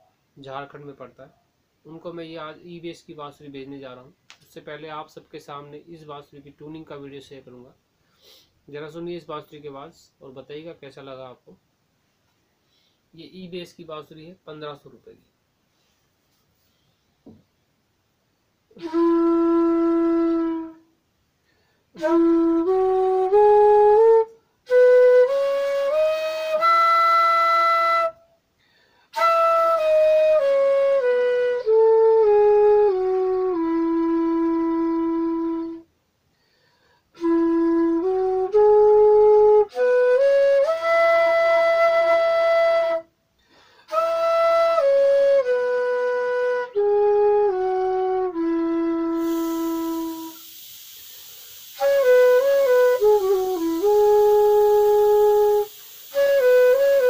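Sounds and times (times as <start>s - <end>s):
bamboo flute playing slow phrases: 18.7s - 21.0s, 22.0s - 28.3s, 29.1s - 35.9s, 37.2s - 43.2s, 43.9s - 50.7s, 51.5s - 57.0s.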